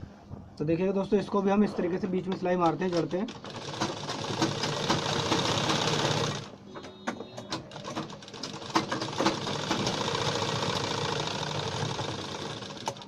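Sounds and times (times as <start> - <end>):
sewing machine stitching: 2.6 - 13.0.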